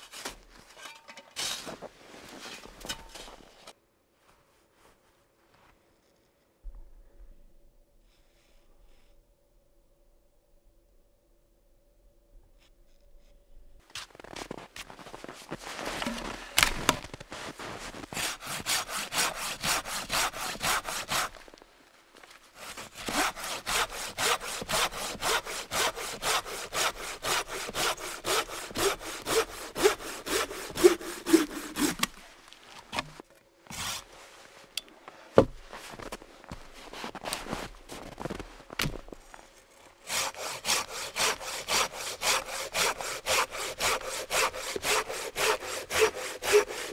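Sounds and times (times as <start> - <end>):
hand saw cutting log: 17.6 - 21.6, 22.6 - 34.1, 40.0 - 46.9.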